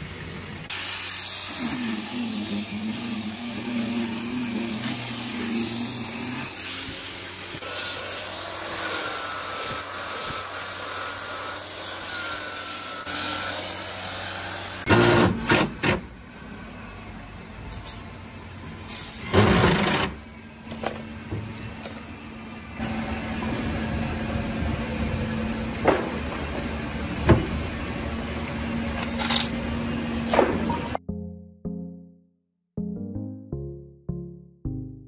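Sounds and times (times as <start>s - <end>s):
belt sander whining: 0.0s - 14.9s
electric disc sander humming: 0.7s - 14.9s, 22.7s - 28.9s.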